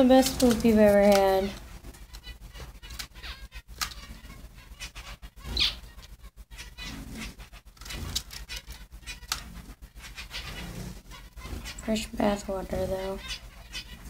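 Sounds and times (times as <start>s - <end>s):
wings fluttering: 0.0s - 14.0s
bird rustling in cage: 6.8s - 12.0s.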